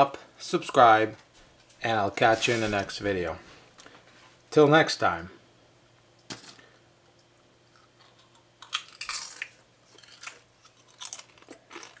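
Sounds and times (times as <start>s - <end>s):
potato chips crunching: 7.7s - 12.0s.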